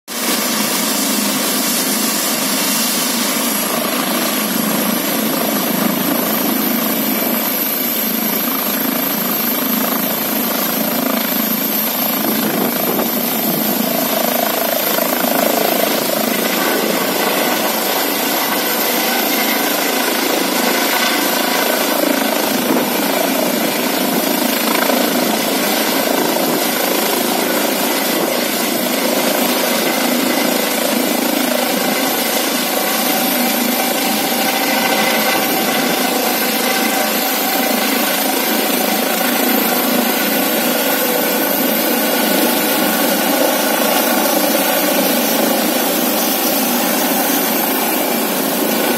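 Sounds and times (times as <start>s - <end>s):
helicopter rotors: 0.2s - 48.9s
high turbine whine: 0.2s - 48.9s.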